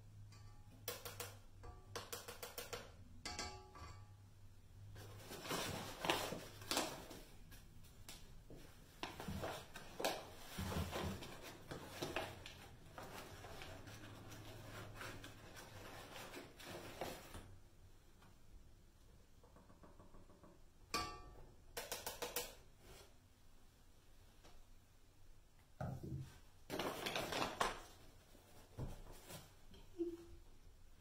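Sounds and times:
paper bag rustling and crinkling: 5.0 - 7.4, 26.7 - 28.2.

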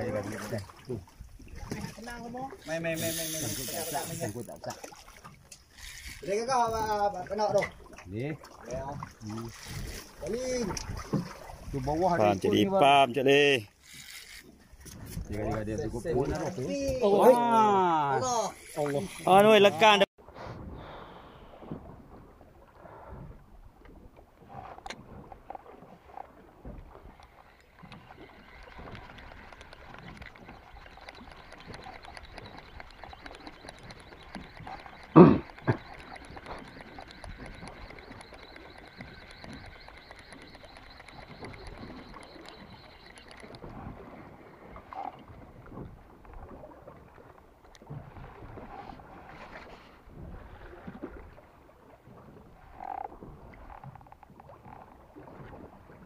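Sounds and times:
water lapping against boat hull: 0.0 - 56.0
wind: 0.0 - 56.0
faint high whine: 28.1 - 43.6.

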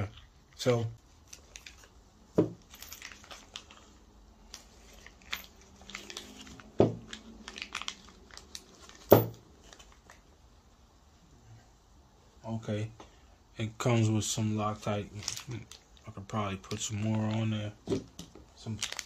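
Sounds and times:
rustling of rubber gloves: 0.0 - 10.6, 14.6 - 19.0.

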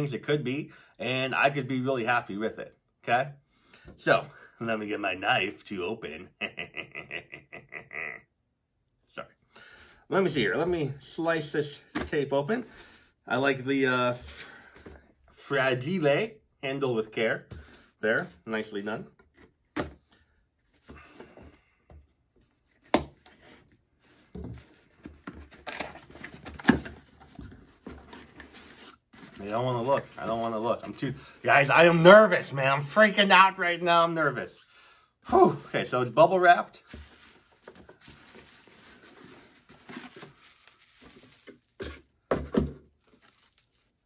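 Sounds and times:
cardboard box rustling and scraping: 22.6 - 31.0, 36.9 - 43.8
bubble wrap rustling: 36.8 - 42.0, 42.9 - 44.0
package bumps and crinkles: 36.8 - 44.0.

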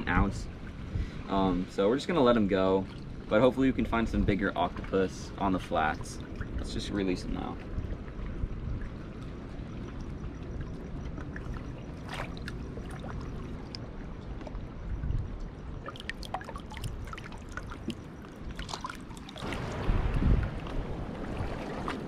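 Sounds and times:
low steady rumble: 0.0 - 22.0
shallow seawater sloshing: 0.0 - 22.0
water drips and splashes: 2.0 - 22.0.

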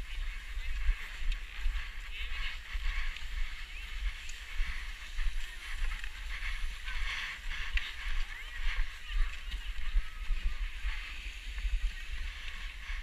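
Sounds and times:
skis scraping over packed snow: 0.0 - 13.0
wind buffeting microphone: 0.0 - 13.0.

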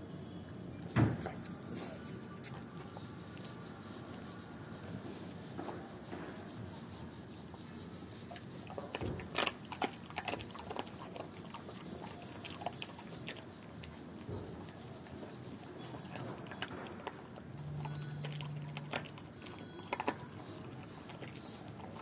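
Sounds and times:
dog crunching bones: 8.3 - 22.0.

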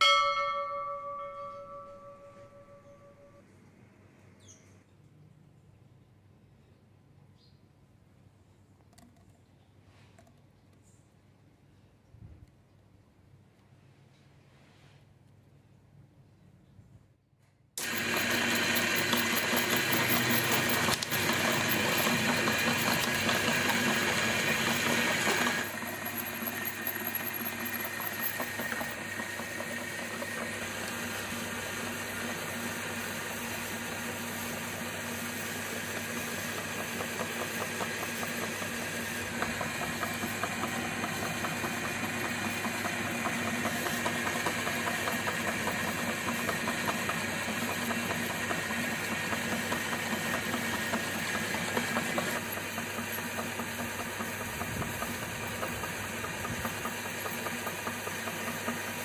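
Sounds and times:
electric meat grinder motor: 17.8 - 59.0.

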